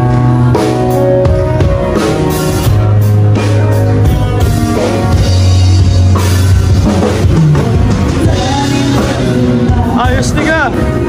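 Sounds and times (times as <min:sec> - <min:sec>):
drum kit: 0:00.0 - 0:11.0
guitar: 0:00.0 - 0:11.0
low bass line: 0:00.0 - 0:11.0.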